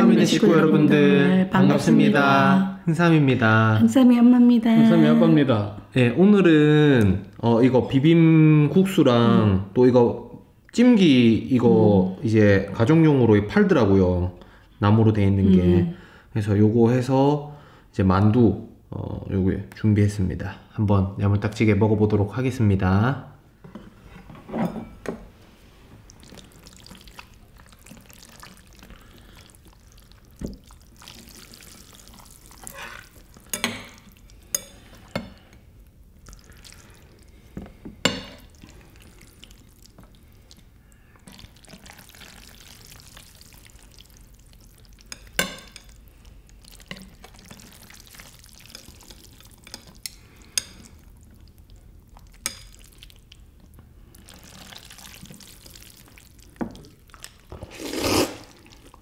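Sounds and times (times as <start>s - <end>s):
wet sounds of noodles: 25.5s - 59.0s.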